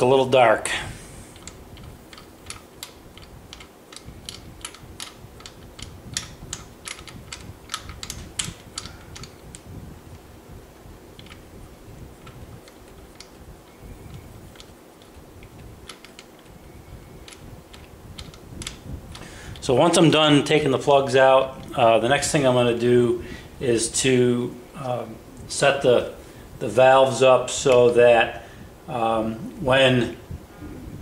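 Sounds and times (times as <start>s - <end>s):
low steady hum: 0.0s - 31.0s
tools clicking on engine parts: 1.3s - 10.2s, 11.2s - 11.5s, 12.2s - 16.6s, 17.2s - 19.7s.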